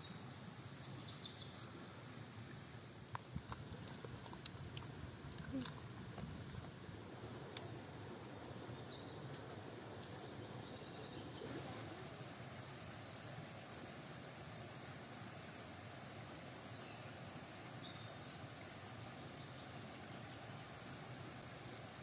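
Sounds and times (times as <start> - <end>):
small birds chirping: 0.0 - 2.2, 7.2 - 22.0
low rush of background noise: 0.0 - 22.0.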